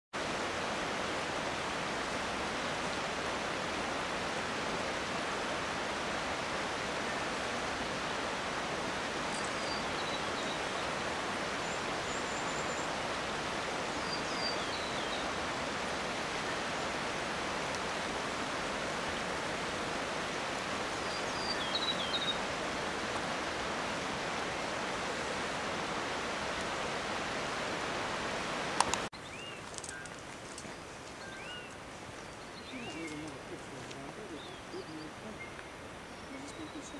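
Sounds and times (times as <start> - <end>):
river rushing over gravel: 0.2 - 36.9.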